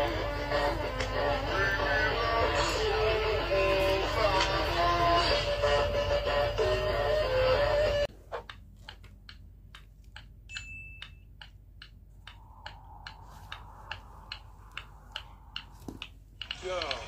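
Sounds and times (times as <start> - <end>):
steady light ticking: 8.5 - 17.0
faint hum: 9.2 - 16.7.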